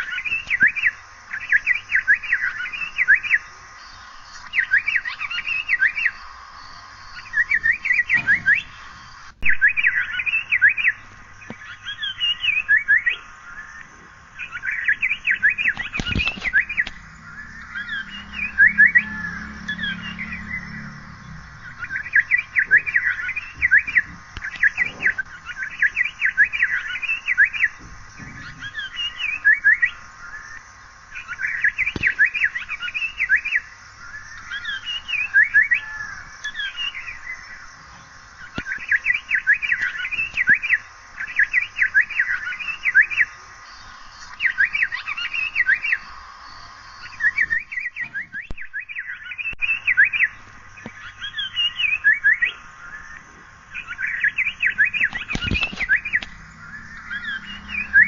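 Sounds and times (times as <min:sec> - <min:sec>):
bird chirping high notes: 0:14.4 - 0:27.8, 0:53.7 - 0:58.0.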